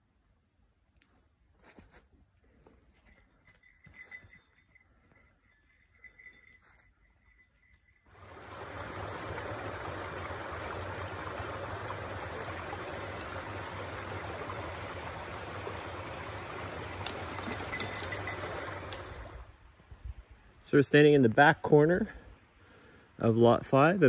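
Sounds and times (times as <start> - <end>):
brook running over rocks: 8.1 - 19.5.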